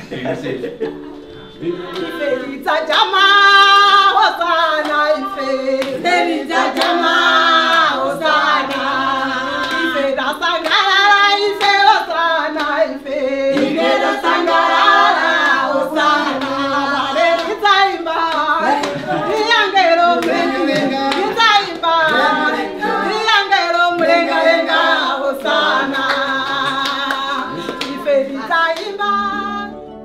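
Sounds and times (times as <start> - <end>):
women singing together: 1.4 - 29.9
hands clapping: 1.9 - 2.2, 4.8 - 5.1, 5.8 - 7.9, 9.6 - 11.0, 13.5 - 13.8, 15.2 - 15.7, 16.3 - 16.7, 17.3 - 22.4, 24.9 - 29.1.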